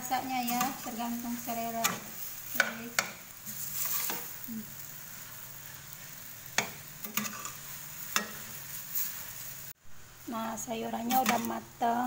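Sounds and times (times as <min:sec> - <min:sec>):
food sizzling in a wok: 0:00.0 - 0:12.0
metal spatula clinking on pan: 0:06.6 - 0:08.5.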